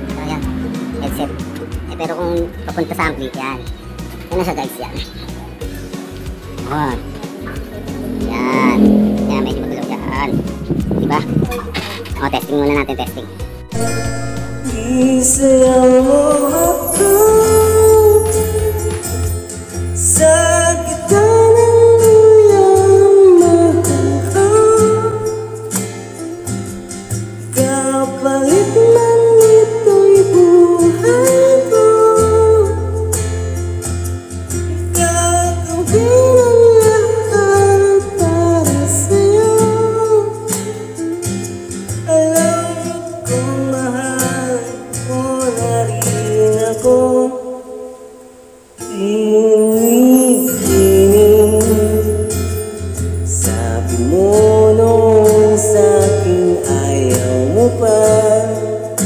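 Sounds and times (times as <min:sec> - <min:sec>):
steady bass line: 0:00.0 - 0:04.0, 0:06.2 - 0:19.5
guitar: 0:00.0 - 0:59.0
person singing: 0:06.6 - 0:11.7, 0:12.8 - 0:25.6, 0:27.6 - 0:33.1, 0:35.0 - 0:41.3, 0:48.8 - 0:59.0.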